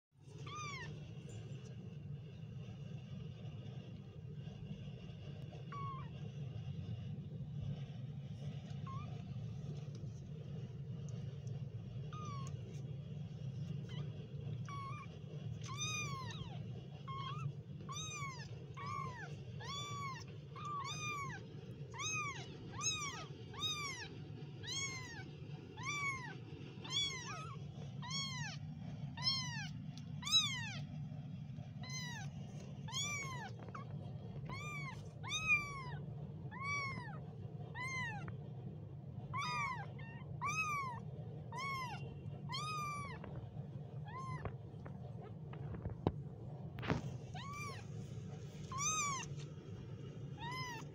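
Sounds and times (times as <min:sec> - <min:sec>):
steady low hum: 0:00.2 - 0:50.9
kittens mewing: 0:12.0 - 0:12.8, 0:13.7 - 0:31.0, 0:31.8 - 0:38.4, 0:39.2 - 0:46.1, 0:46.8 - 0:49.5, 0:50.3 - 0:50.9.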